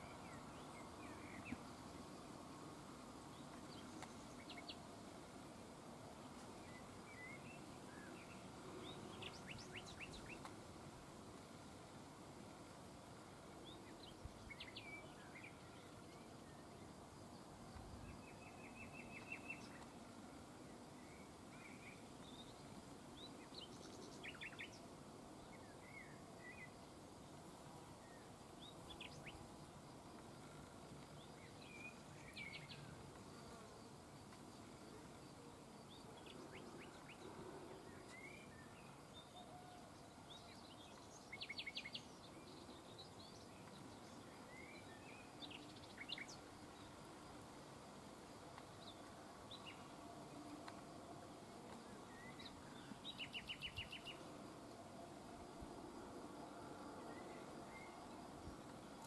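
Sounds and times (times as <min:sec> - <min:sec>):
low steady hiss: 0:00.0 - 0:59.0.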